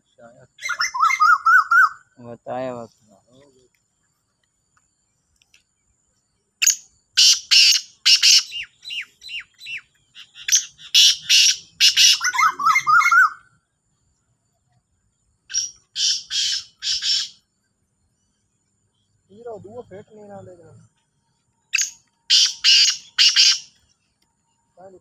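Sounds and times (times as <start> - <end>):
bird calling harsh rasping notes: 0.0 - 2.2, 6.6 - 13.6, 15.5 - 17.5, 21.6 - 24.2.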